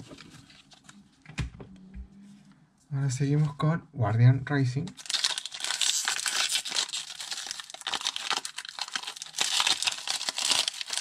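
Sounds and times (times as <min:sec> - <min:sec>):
foil wrapper crinkling and tearing: 0:04.9 - 0:11.0.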